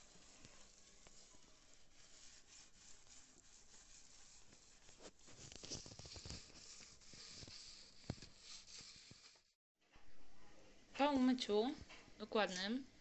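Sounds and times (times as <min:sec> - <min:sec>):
sponge scrubbing metal: 0:00.0 - 0:09.5.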